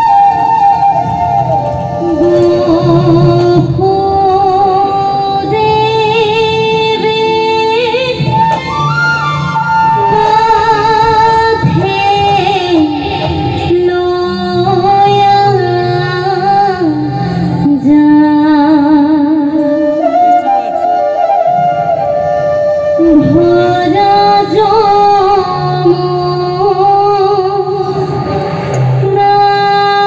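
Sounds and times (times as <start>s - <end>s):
woman singing into microphone: 1.8s - 21.7s, 23.0s - 30.0s
women singing devotional song: 10.2s - 19.6s, 23.1s - 27.9s.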